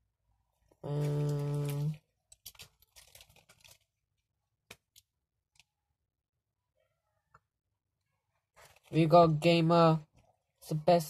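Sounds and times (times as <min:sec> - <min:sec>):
person saying uhh: 0:00.8 - 0:02.0.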